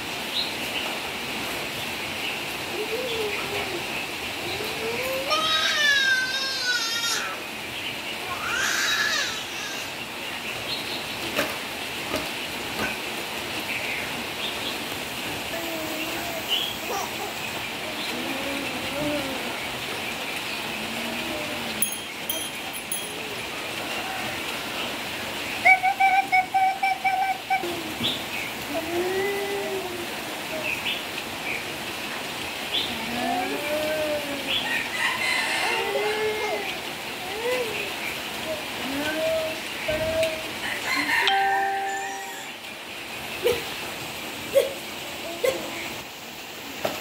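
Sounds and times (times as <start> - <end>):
baby cooing and babbling: 4.5 - 7.4, 8.3 - 10.0, 15.4 - 19.6, 33.0 - 34.5, 35.6 - 40.6.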